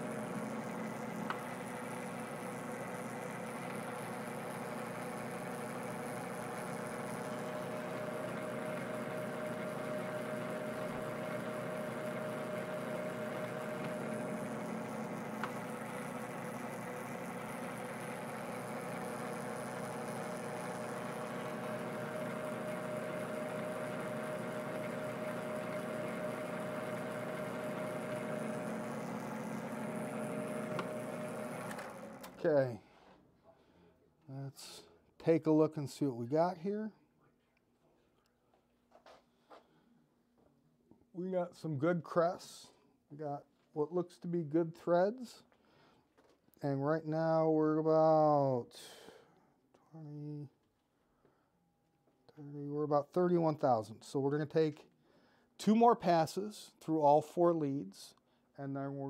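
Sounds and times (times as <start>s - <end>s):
metal lathe motor humming: 0.0s - 32.5s.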